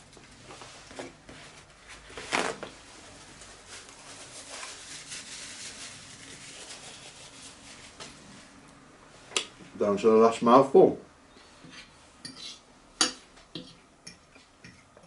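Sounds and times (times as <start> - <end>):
paper rustling: 0.5 - 8.2
paper towel ripping: 2.0 - 8.0.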